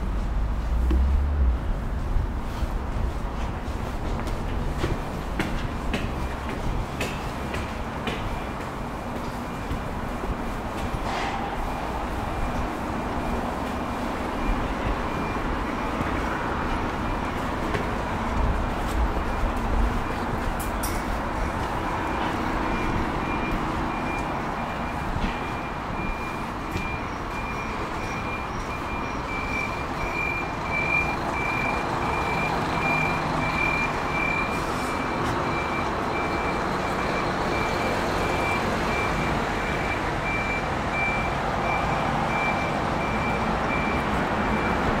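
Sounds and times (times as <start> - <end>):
traffic rumble: 0.0 - 45.0
reversing alarm beeping: 9.4 - 17.8, 21.4 - 45.0.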